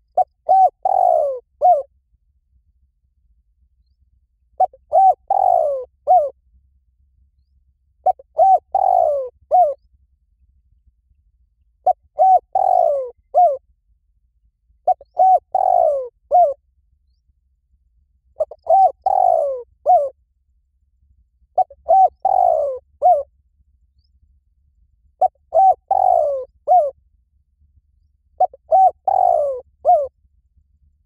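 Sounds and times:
dove cooing: 0.0 - 1.9, 4.6 - 6.4, 8.0 - 9.8, 11.8 - 13.6, 14.8 - 16.6, 18.4 - 20.2, 21.6 - 23.3, 25.2 - 27.0, 28.4 - 30.1.

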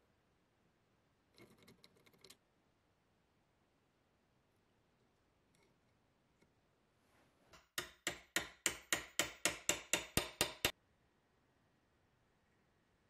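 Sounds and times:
hammer striking metal punch: 7.6 - 10.7.

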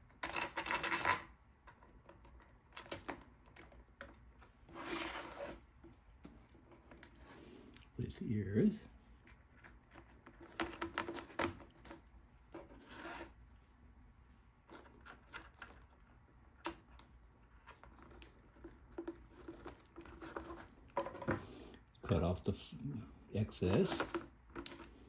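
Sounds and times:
plastic parts clicking and tapping: 23.7 - 25.0.

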